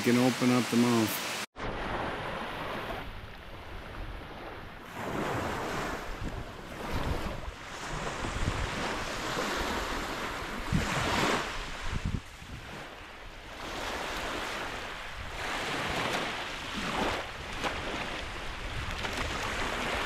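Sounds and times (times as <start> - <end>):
waves washing onto sandy shore: 0.0 - 20.0
wind gusting on microphone: 1.6 - 20.0.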